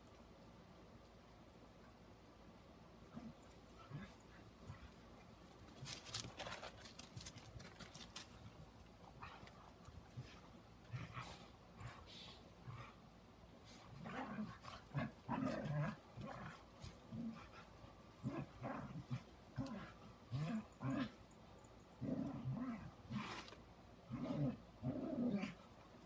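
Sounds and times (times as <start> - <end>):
dogs growling while play-fighting: 3.1 - 5.0, 9.1 - 13.0, 13.7 - 21.2, 22.0 - 25.8.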